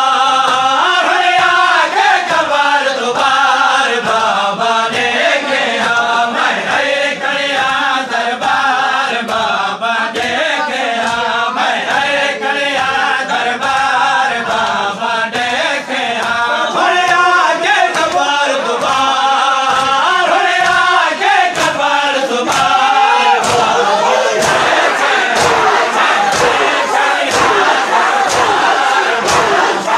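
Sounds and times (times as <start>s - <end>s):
crowd of mourners chanting: 0.0s - 29.9s
lead reciters chanting: 0.0s - 29.9s
hands striking bare chests: 22.5s - 29.9s.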